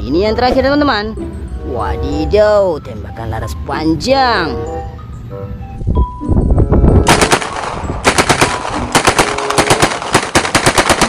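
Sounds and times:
submachine gun automatic bursts: 0:07.1 - 0:11.0.

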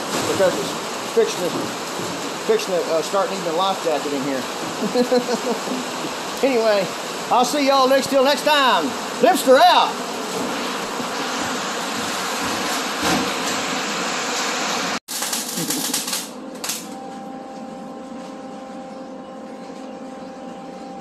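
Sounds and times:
heavy rain falling: 0:00.0 - 0:16.3
steady hum with high whine: 0:00.0 - 0:21.0.

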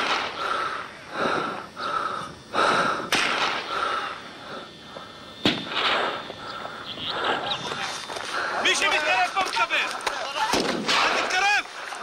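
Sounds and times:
sharp cracks: 0:00.0 - 0:00.5, 0:03.1 - 0:04.1, 0:05.4 - 0:06.8, 0:07.7 - 0:12.0
heavy quick breathing: 0:00.2 - 0:05.2, 0:06.0 - 0:08.8.

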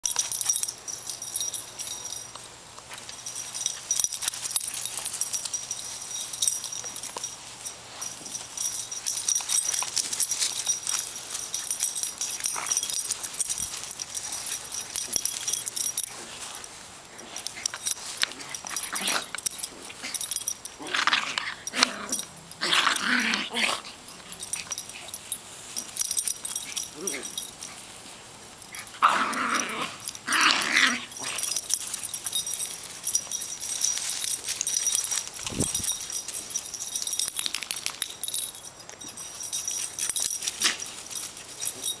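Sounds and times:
dog collar tags jingling: 0:00.0 - 0:42.0.

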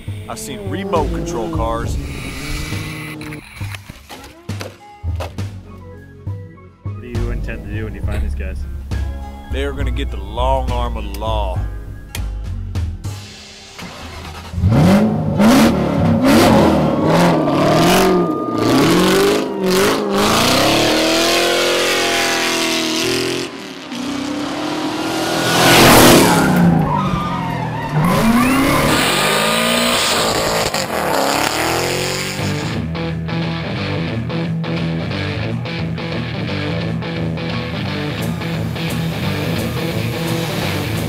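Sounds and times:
engines revving hard: 0:00.0 - 0:03.7, 0:13.8 - 0:32.9, 0:38.1 - 0:41.0.

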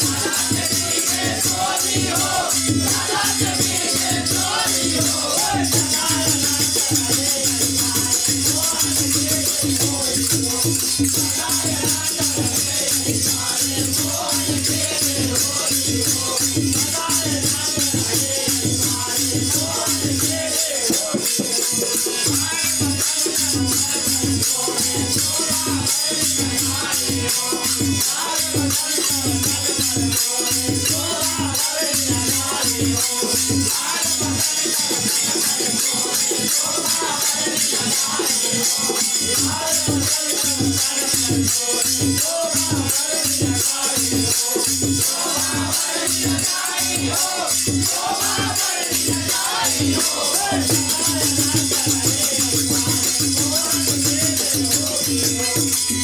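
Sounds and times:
jingles and small cymbals rattling: 0:00.0 - 0:56.0
people singing: 0:00.0 - 0:56.0
steady drum beat: 0:00.0 - 0:56.0.

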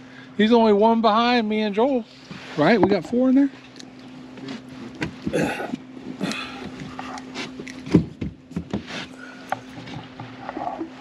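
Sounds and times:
steady low hum: 0:00.0 - 0:11.0
knocks and thumps in boat: 0:06.6 - 0:09.0.

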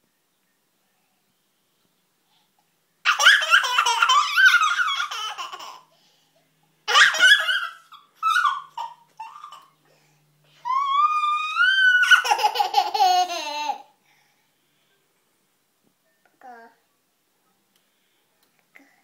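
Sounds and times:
toddler giggling and laughing: 0:03.1 - 0:05.9, 0:06.9 - 0:09.8, 0:11.8 - 0:13.9.

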